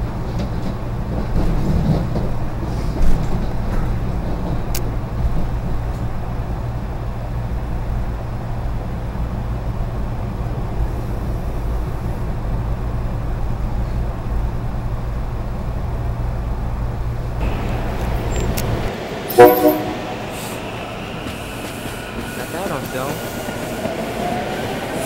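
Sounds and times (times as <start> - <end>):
train rumbling in motion: 0.0 - 25.0
train air horn blast: 19.3 - 20.6.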